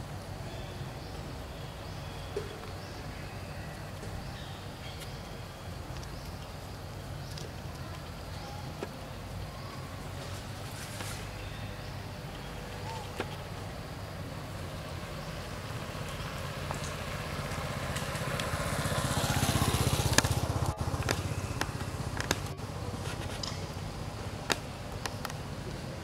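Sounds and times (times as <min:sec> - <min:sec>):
motorbike passing: 0:12.0 - 0:26.0.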